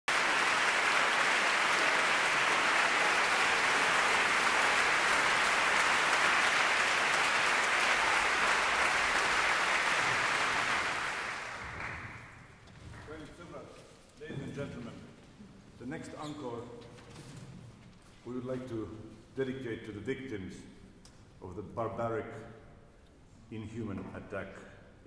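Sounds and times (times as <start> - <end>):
audience applauding: 0.0 - 12.6.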